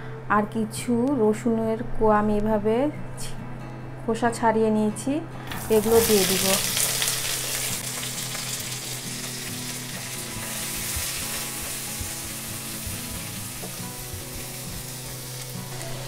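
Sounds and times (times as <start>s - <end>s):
onions sizzling in hot oil: 5.6s - 16.0s.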